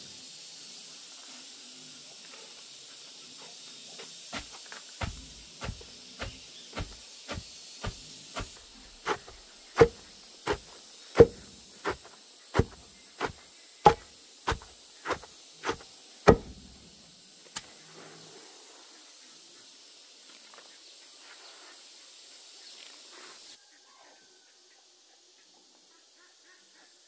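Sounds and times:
steady high hiss: 0.0s - 23.6s
hand tool blows on hard material: 4.4s - 16.7s.

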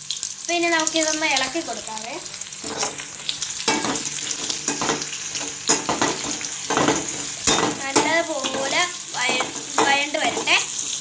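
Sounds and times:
onion sizzling in hot oil: 0.0s - 11.0s
spoon scraping the pan: 2.6s - 11.0s.

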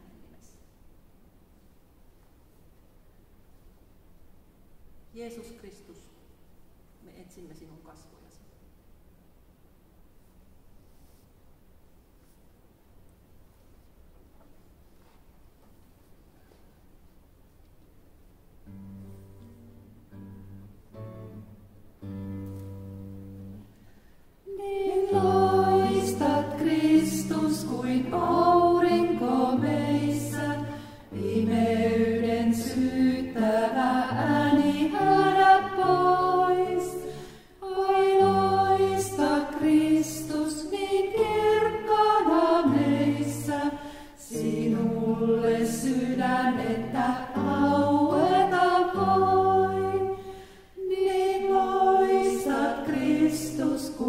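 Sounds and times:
acoustic guitar: 18.1s - 54.0s
women singing a hymn: 24.5s - 54.0s.

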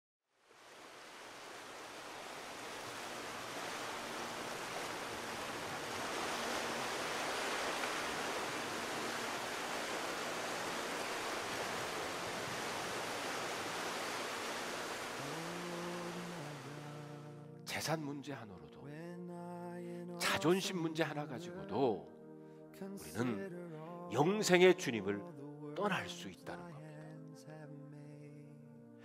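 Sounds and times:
waves breaking: 0.5s - 17.3s.

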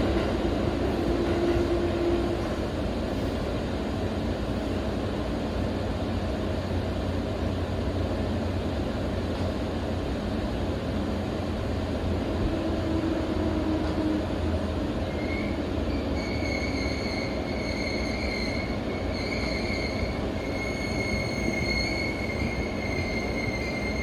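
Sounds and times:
train running rumble: 0.0s - 24.0s
metallic wheel squeal: 15.1s - 24.0s.

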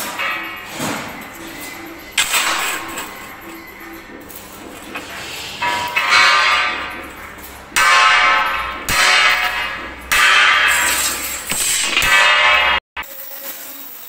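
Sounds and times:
bell-like ringing tones: 0.0s - 12.8s.

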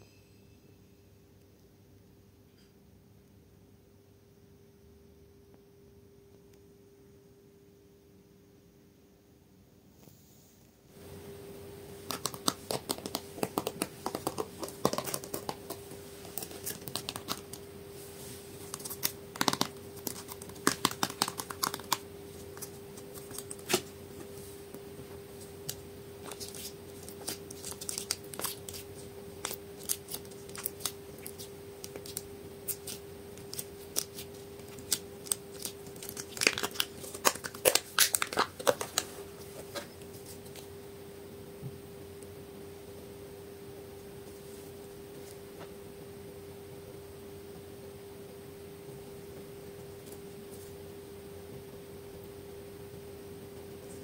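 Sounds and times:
faint steady hum: 0.0s - 54.0s
slime and plastic cups crackling: 12.0s - 40.7s.

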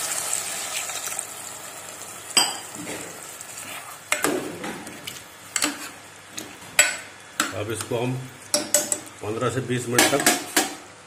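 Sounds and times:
spoon stirring curry: 4.9s - 9.0s
spoon knocking against pot: 8.5s - 9.1s.

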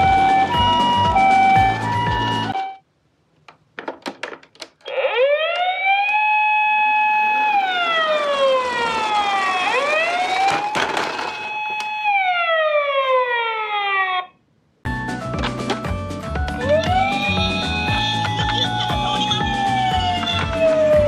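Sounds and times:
toy ambulance siren wailing: 0.0s - 2.8s, 4.9s - 14.3s, 16.6s - 21.0s.

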